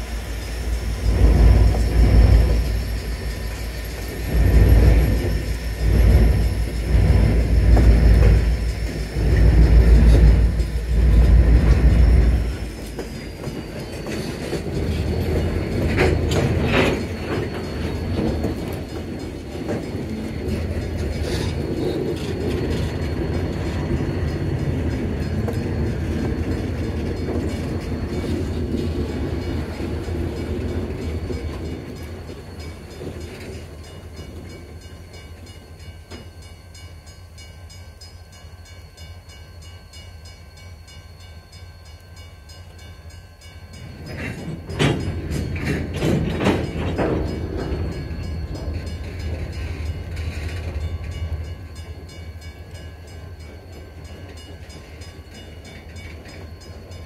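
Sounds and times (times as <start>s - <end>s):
train wheels clacking over rail joints: 0.9s - 35.5s, 43.8s - 57.0s.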